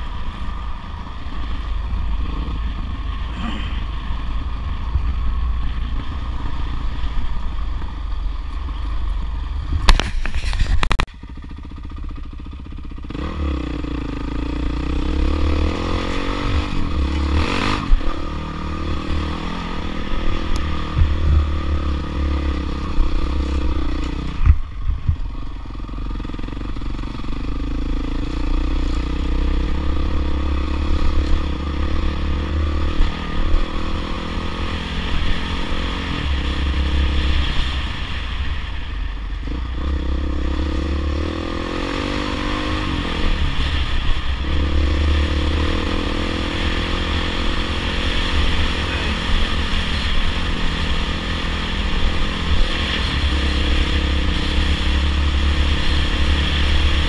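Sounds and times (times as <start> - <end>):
dirt bike engine revving: 11.4 - 24.5, 26.0 - 38.3, 39.5 - 57.0.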